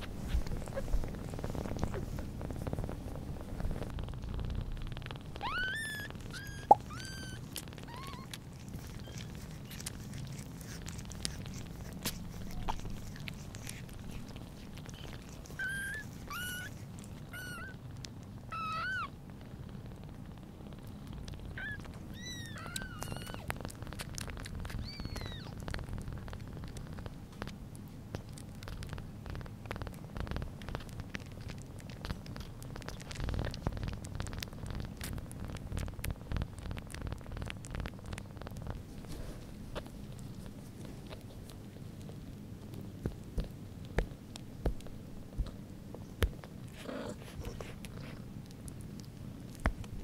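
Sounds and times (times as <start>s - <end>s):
cat purring: 0.0s - 50.0s
kitten mewing: 5.3s - 17.8s, 18.5s - 19.1s, 21.4s - 25.8s.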